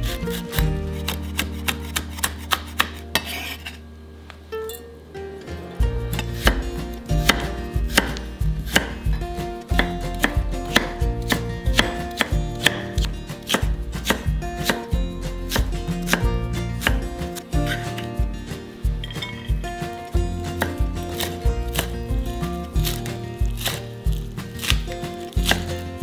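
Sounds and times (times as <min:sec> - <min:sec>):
knife chopping on cutting board: 0:00.3 - 0:03.7, 0:06.2 - 0:14.9, 0:15.5 - 0:17.1, 0:20.6 - 0:22.0, 0:22.8 - 0:25.9.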